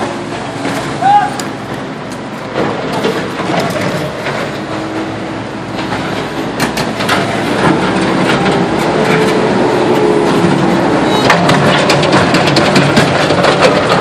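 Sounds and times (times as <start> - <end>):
mini excavator engine humming: 0.0 - 14.0
knocks and clatter: 2.1 - 4.7, 5.7 - 14.0.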